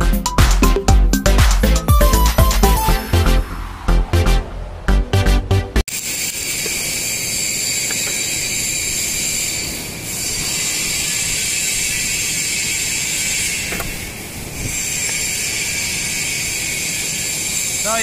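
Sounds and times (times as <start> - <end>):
welding arc crackling and hissing: 5.9 - 18.0.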